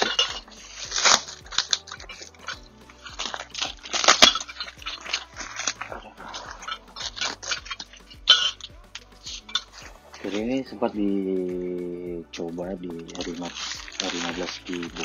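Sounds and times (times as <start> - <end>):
metal parts clicking and clinking: 0.0 - 5.3
packaging rustling: 13.0 - 15.0.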